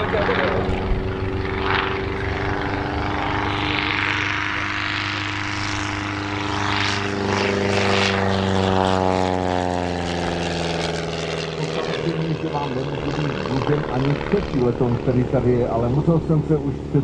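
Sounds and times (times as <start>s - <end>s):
light aircraft droning overhead: 0.0s - 17.0s.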